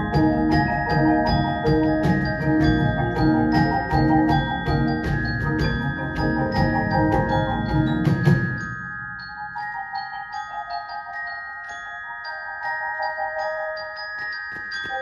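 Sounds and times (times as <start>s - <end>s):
sharp percussive hits: 0.0s - 9.8s
marimbas and mallet keyboards: 0.0s - 15.0s.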